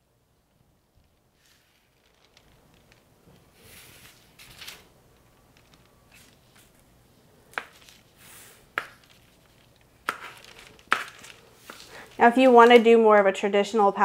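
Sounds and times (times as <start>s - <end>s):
spatula scraping meringue: 7.6s - 12.3s.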